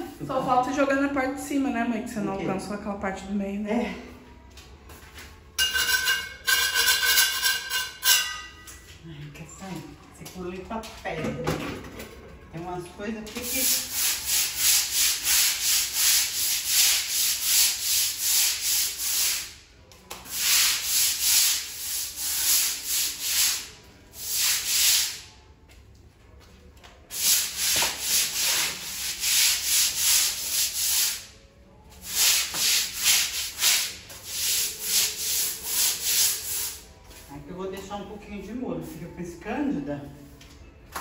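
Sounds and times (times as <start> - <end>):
broom scrubbing wet tile floor: 13.3 - 19.6, 20.2 - 25.4, 27.1 - 37.3.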